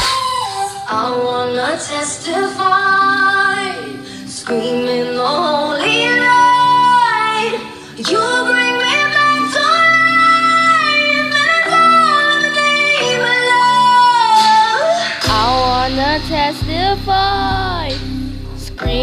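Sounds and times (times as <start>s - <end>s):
pop karaoke backing track: 0.0s - 19.0s
woman singing: 0.0s - 19.0s.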